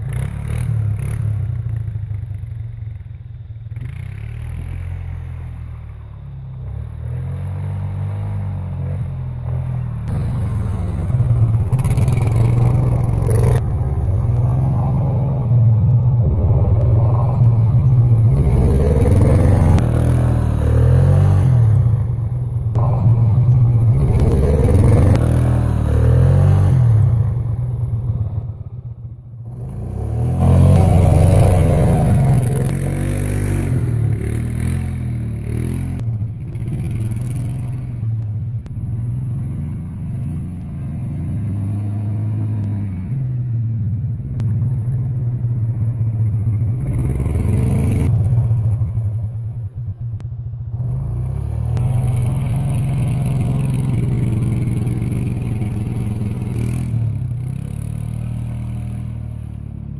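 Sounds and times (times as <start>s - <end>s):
quad engine revving: 6.6s - 28.4s, 29.4s - 43.3s, 46.5s - 49.2s, 50.8s - 59.9s.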